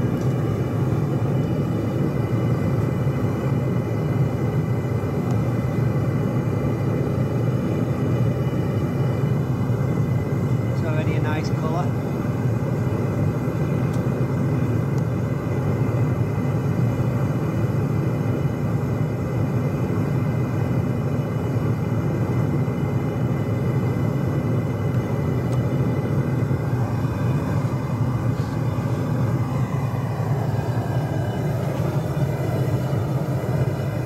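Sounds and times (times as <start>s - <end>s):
gas burner rushing: 0.0s - 34.0s.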